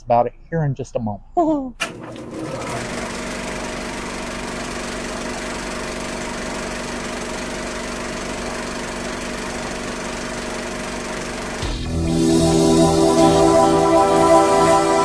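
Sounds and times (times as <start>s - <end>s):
steady buzzing drone: 8.9s - 15.0s.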